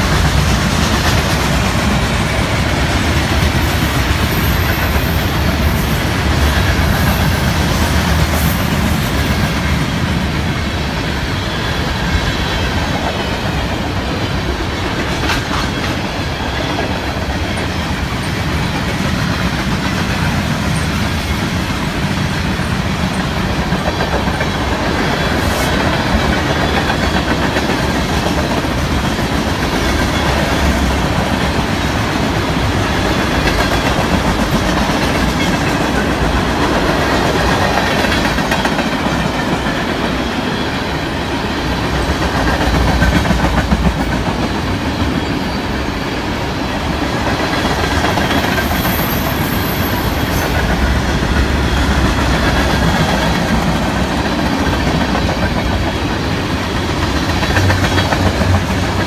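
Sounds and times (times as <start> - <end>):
train wheels running on rails: 0.0 - 59.0.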